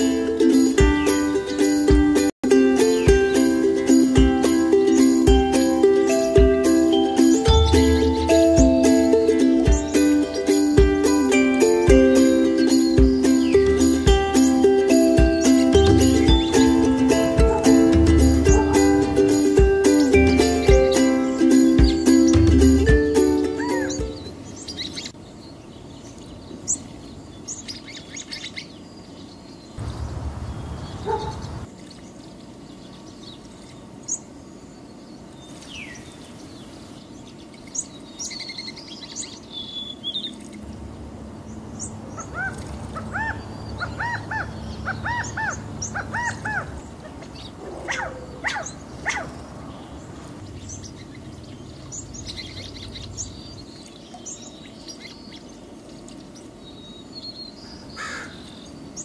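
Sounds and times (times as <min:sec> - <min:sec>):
quails chirping: 0:04.8 - 0:25.2, 0:29.8 - 0:31.7, 0:41.8 - 0:59.0.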